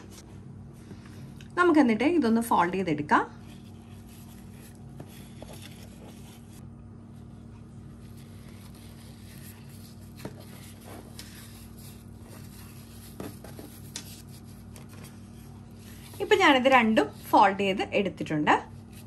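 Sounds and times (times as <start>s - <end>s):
steady low hum: 0.0s - 19.0s
paper rustling: 3.4s - 6.6s, 7.9s - 16.5s.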